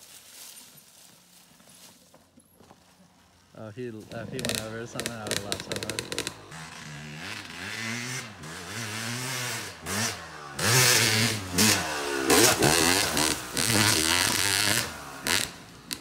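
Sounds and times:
dirt bike revving: 0:04.0 - 0:16.0.

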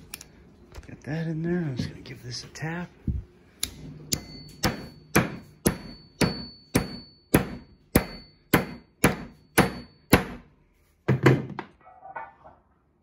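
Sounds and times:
hammer striking wooden wedge: 0:04.1 - 0:10.5.

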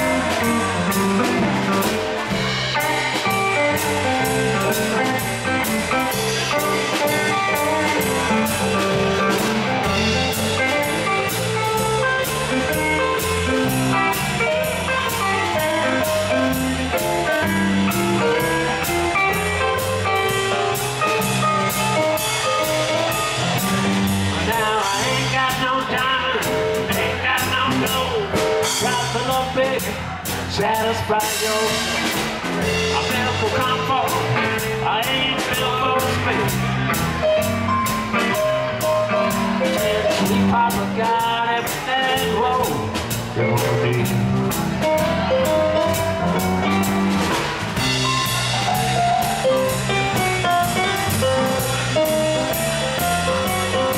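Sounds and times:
drum kit with cymbals: 0:00.0 - 0:53.9
electric bass: 0:00.0 - 0:53.9
electric guitar: 0:00.0 - 0:53.9.

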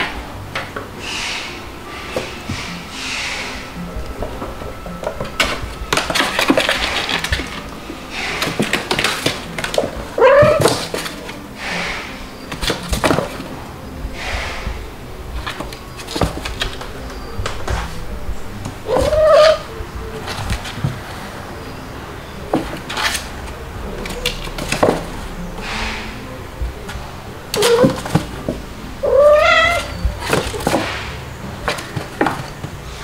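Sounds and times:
cats scuffling on wooden floor: 0:01.9 - 0:33.0
cat meow: 0:10.2 - 0:10.9, 0:18.9 - 0:20.2, 0:29.0 - 0:30.4.

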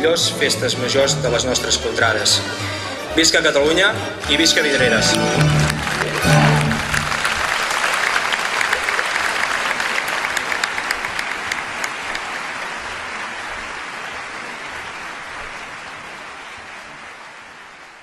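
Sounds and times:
crowd applauding: 0:03.2 - 0:18.0.

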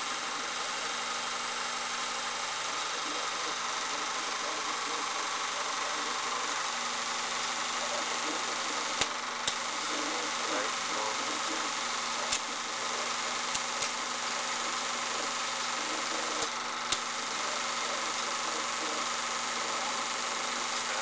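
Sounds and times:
film transfer hum and hiss: 0:00.0 - 0:21.0
sharp clicks: 0:08.9 - 0:09.7, 0:13.5 - 0:14.1, 0:16.4 - 0:17.2.

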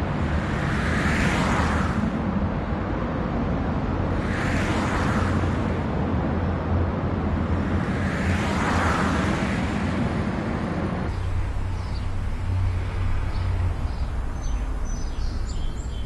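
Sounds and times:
cars driving past: 0:00.0 - 0:16.0.

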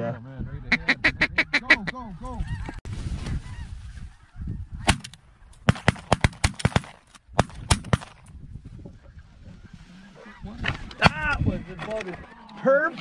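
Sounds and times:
shotgun shots: 0:04.8 - 0:08.2.

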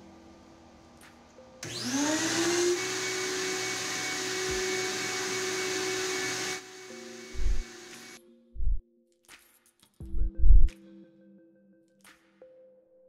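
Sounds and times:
vacuum motor whining: 0:01.6 - 0:08.2.

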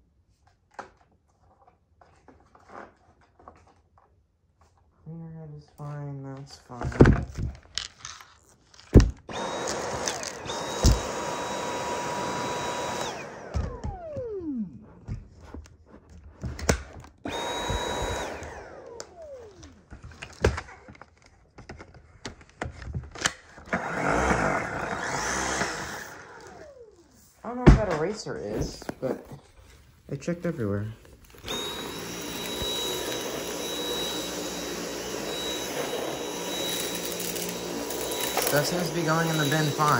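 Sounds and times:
vacuum cleaner motor whine: 0:09.3 - 0:15.3, 0:16.4 - 0:21.0, 0:23.6 - 0:29.4, 0:30.2 - 0:39.9.

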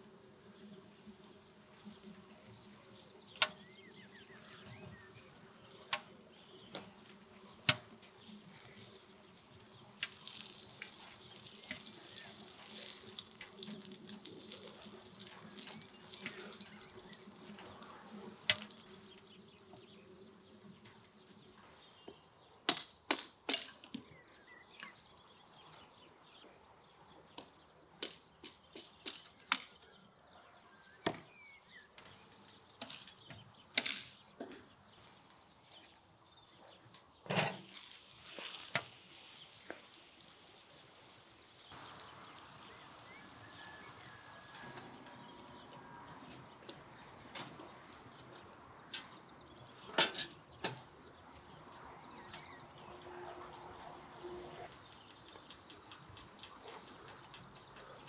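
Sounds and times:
dough sizzling in oil: 0:00.0 - 0:21.6, 0:37.1 - 0:45.4
oil popping and crackling: 0:00.0 - 0:21.9, 0:36.9 - 0:53.0, 0:54.7 - 0:58.0.

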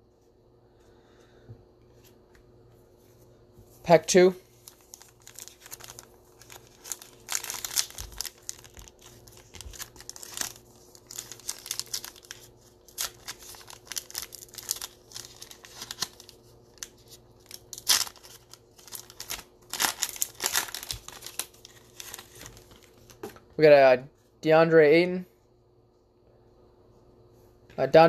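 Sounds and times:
foil wrapper crinkling and tearing: 0:04.6 - 0:23.2.

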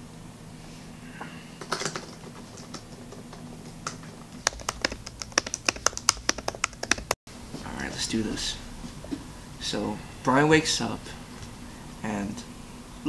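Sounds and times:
laptop keyboard typing: 0:01.7 - 0:07.2.

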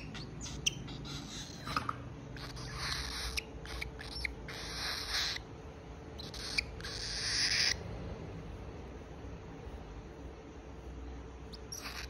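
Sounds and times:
cockatiel hissing: 0:00.0 - 0:05.5, 0:06.2 - 0:07.8, 0:11.5 - 0:12.0
cockatiel squeaky chirps: 0:00.0 - 0:05.5, 0:06.2 - 0:07.8, 0:11.5 - 0:12.0.

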